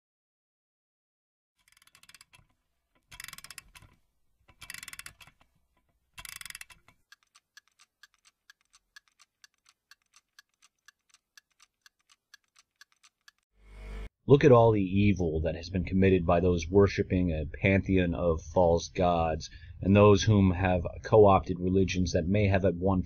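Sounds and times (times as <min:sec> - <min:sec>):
rapid ratcheting clicks: 0:01.6 - 0:05.5, 0:06.2 - 0:13.4
clock ticking: 0:03.1 - 0:03.9, 0:04.5 - 0:05.5, 0:06.2 - 0:13.4.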